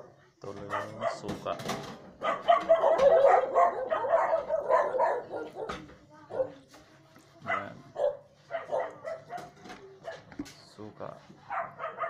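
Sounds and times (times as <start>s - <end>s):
dog yelping: 0.7s - 1.3s, 2.2s - 6.6s, 7.4s - 10.3s, 11.5s - 12.0s.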